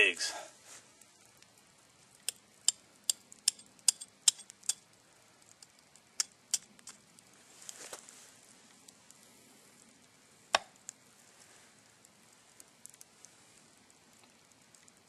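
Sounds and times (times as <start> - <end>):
eggshell tapping on metal: 2.2 - 4.8.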